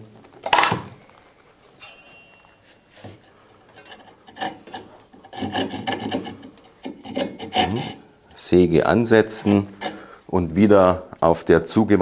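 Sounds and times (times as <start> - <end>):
hand saw rasping through wood: 3.9 - 8.0, 9.3 - 10.1.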